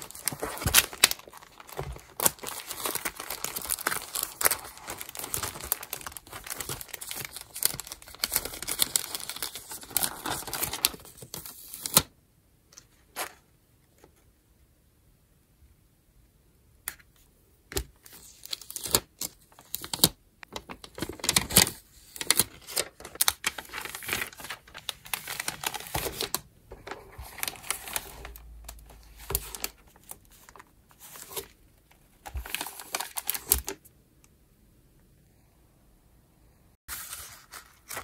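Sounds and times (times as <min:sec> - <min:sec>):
paper crinkling and rustling: 0:00.0 - 0:12.1, 0:17.7 - 0:33.8, 0:36.9 - 0:38.0.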